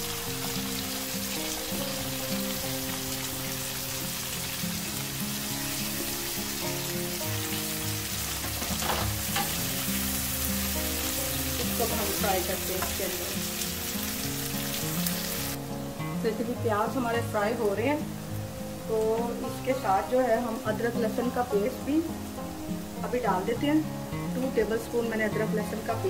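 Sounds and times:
onions sizzling in frying pan: 0.0 - 26.0
spatula stirring and clattering: 8.3 - 9.9.

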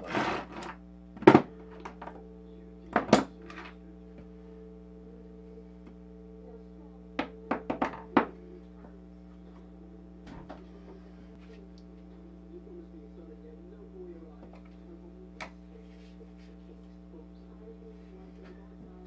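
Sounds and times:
steady low hum: 0.0 - 19.0
tools knocking on workbench: 7.2 - 8.3.

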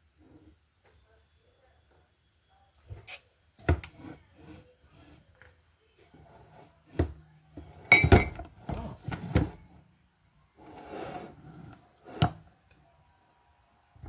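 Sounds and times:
dishes clinking on tabletop: 7.8 - 8.5.

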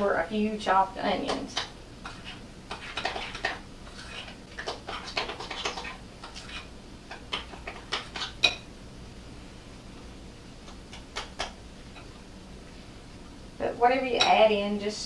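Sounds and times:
spoon stirring in glass bowl: 1.2 - 8.7.

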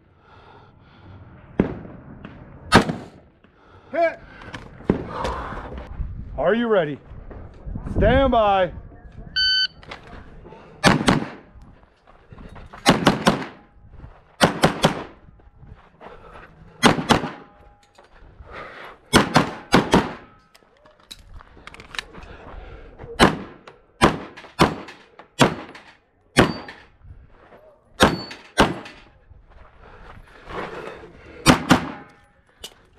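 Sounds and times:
pistol gunshots: 2.7 - 3.2, 10.8 - 11.5, 12.8 - 13.6, 14.4 - 15.2, 16.8 - 17.5, 19.1 - 20.3, 23.2 - 26.8, 28.0 - 29.1, 31.4 - 32.2.

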